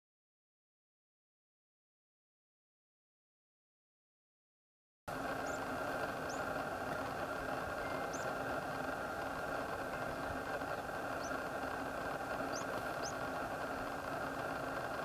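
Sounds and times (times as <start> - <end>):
car engine idling: 5.1 - 15.0
small birds chirping: 5.2 - 15.0.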